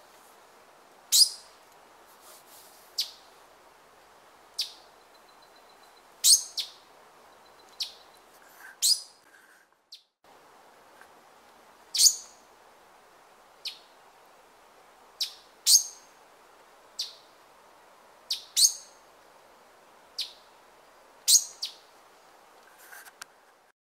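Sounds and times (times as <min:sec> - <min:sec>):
background hiss: 0:00.0 - 0:23.7
bird chip calls: 0:03.0 - 0:03.2, 0:04.6 - 0:09.2, 0:11.9 - 0:12.4, 0:15.2 - 0:16.1, 0:17.0 - 0:17.3, 0:18.3 - 0:19.0, 0:20.2 - 0:20.5.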